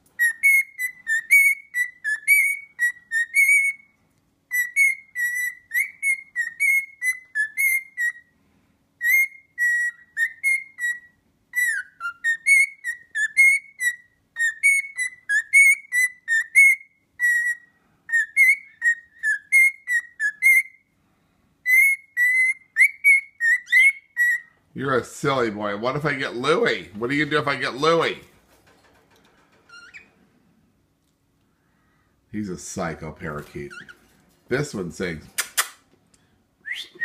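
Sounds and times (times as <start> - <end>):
bird whistling a song: 0.2 - 8.3, 9.0 - 20.9, 21.6 - 24.6, 36.6 - 37.0.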